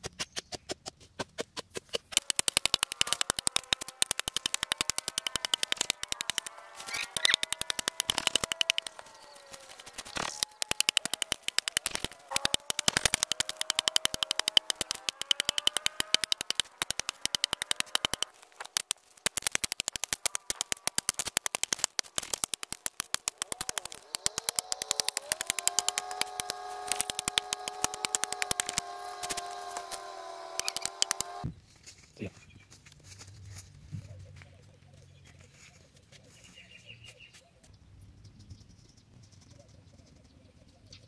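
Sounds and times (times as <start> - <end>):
steady pitched tone: 10.2 - 29.7
hatchet chopping into log: 23.4 - 30.1.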